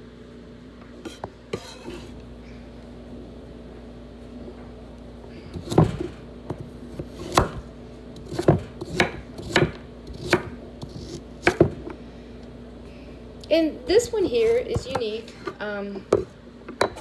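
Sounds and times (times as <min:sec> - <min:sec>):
knife chopping on wooden board: 0:05.6 - 0:07.6, 0:08.2 - 0:11.8.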